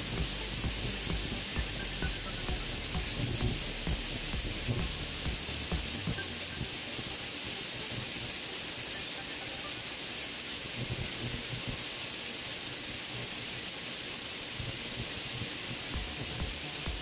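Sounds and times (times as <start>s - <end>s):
welding arc hissing: 0.0s - 17.0s.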